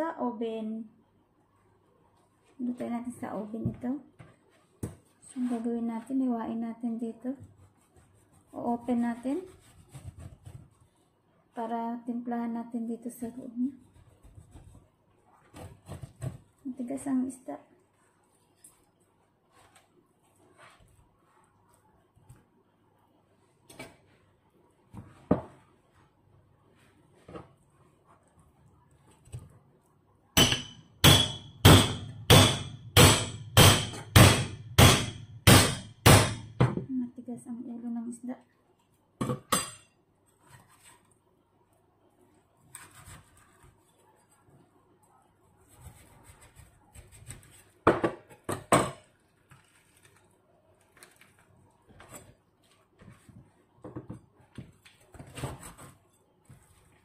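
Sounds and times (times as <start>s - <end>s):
pestle hammering cleaver spine: 30.4s - 36.7s.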